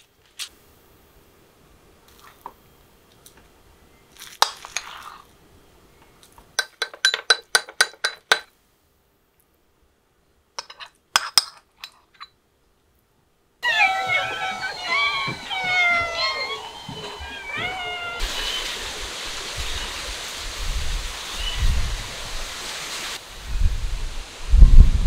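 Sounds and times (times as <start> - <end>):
metal spoon clinking in ceramic bowl: 6.6 - 8.4.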